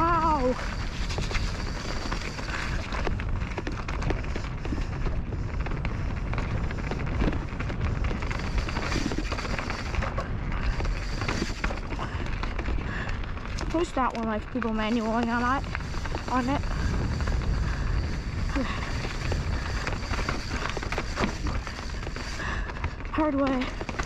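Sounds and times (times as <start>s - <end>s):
bike knocks and rattles: 0.0s - 24.0s
tyres over dirt and rocks: 0.0s - 24.0s
wind buffeting microphone: 0.0s - 24.0s.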